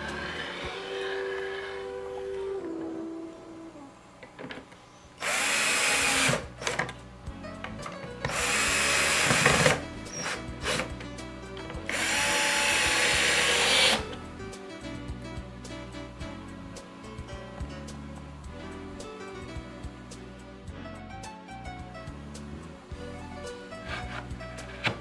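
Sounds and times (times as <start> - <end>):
quiet background music: 0.0 - 25.0
cordless drill driving screws: 5.2 - 6.8, 8.2 - 10.9, 11.9 - 14.0.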